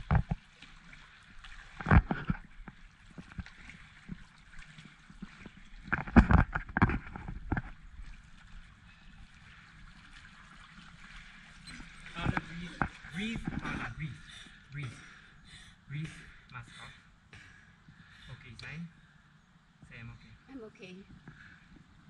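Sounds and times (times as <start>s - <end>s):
low wash of water: 0.0s - 14.7s
pool water splashing: 0.0s - 19.2s.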